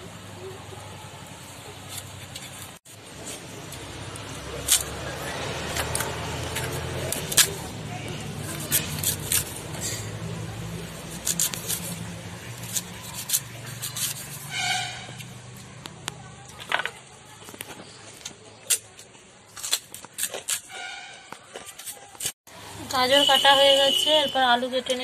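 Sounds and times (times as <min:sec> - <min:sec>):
carrot cracking on a blade: 0:03.7 - 0:07.7, 0:08.3 - 0:09.8, 0:11.0 - 0:14.4.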